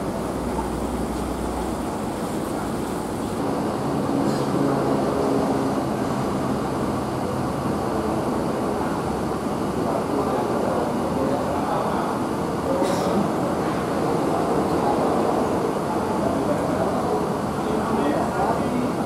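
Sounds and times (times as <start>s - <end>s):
coach engine hum: 0.0s - 11.7s.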